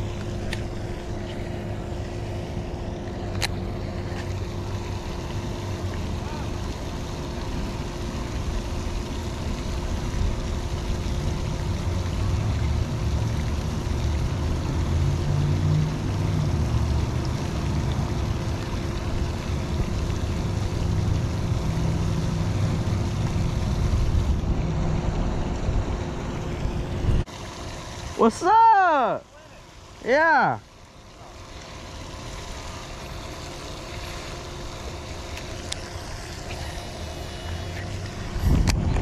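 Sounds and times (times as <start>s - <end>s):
steady hum: 0.0s - 39.0s
wind buffeting microphone: 38.2s - 39.0s.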